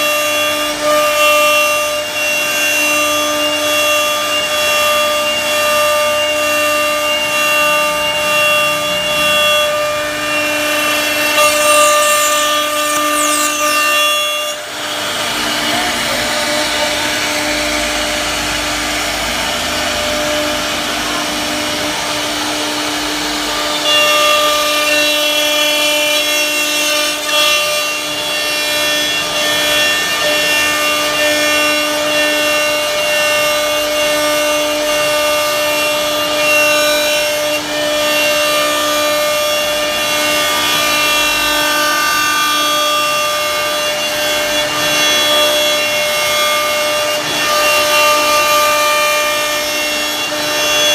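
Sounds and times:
router spindle whining: 0.0s - 50.9s
router bit rasping into wood: 7.1s - 17.8s.

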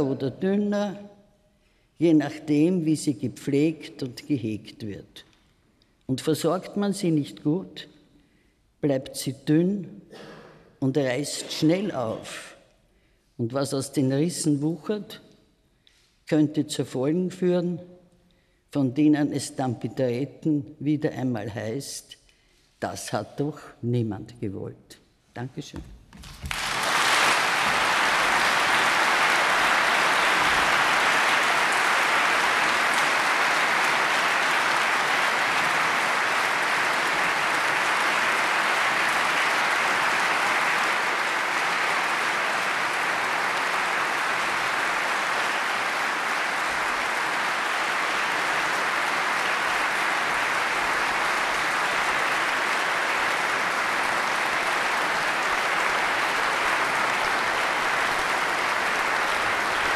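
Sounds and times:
large audience applauding: 26.2s - 59.9s.

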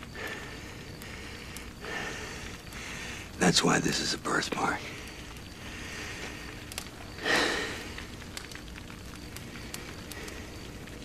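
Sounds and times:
faint crackling clicks: 0.0s - 11.0s.

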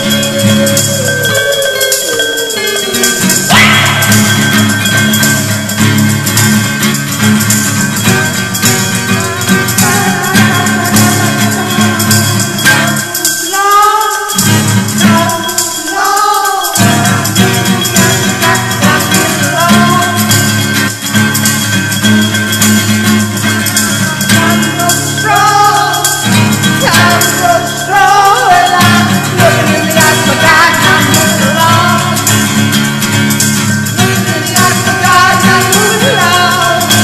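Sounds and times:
shaker percussion: 0.0s - 37.0s.

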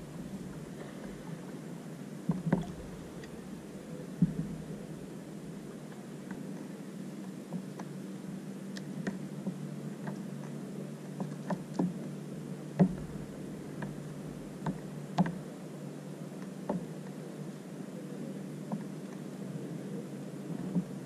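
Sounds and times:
steady low hum: 0.0s - 21.0s
light knocks on a kayak: 4.2s - 4.6s, 12.8s - 14.0s.

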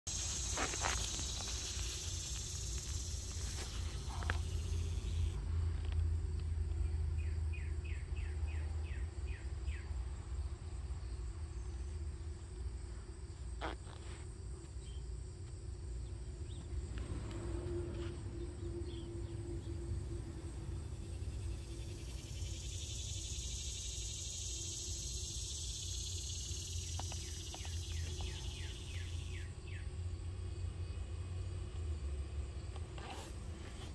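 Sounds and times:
high insect buzzing: 0.1s - 5.4s, 13.4s - 14.3s
faint steady hum: 0.1s - 33.9s.

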